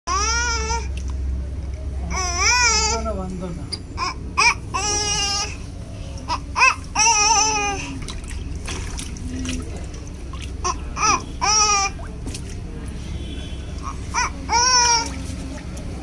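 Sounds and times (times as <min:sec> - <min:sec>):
water splashing lightly: 0:07.8 - 0:14.0.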